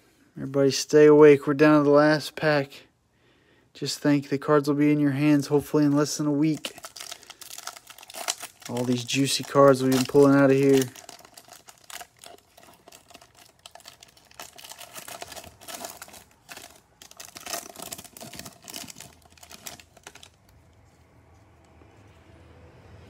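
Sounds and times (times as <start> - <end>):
plastic wrapper crinkling: 5.4 - 21.0.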